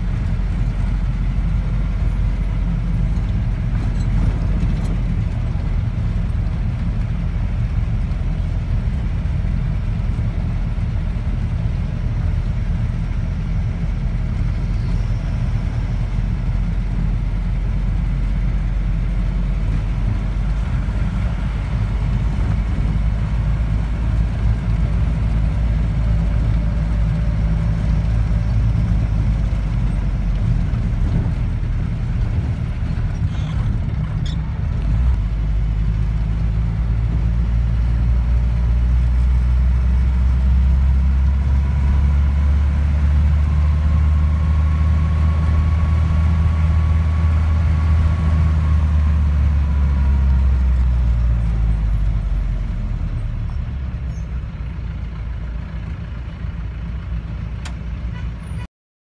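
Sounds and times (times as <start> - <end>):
vehicle engine and road noise: 0.0 - 58.7.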